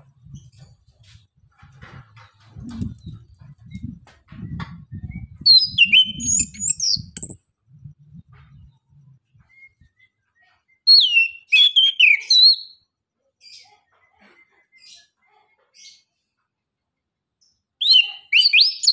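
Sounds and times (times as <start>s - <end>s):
thrush whistling song: 2.8s - 12.8s, 17.8s - 18.9s.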